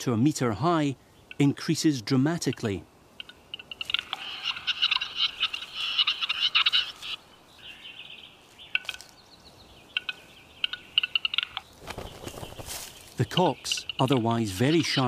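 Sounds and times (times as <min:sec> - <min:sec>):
grouse courtship song: 0:00.0 - 0:15.0
dry clicks: 0:10.0 - 0:11.7.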